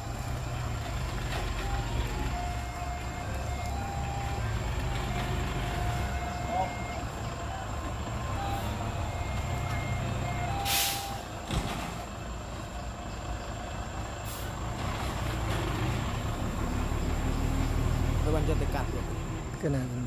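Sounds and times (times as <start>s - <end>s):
reversing beeper: 0.0s - 11.3s
dump truck diesel engine: 0.0s - 20.0s
air brakes hissing: 10.4s - 11.3s, 14.2s - 14.6s.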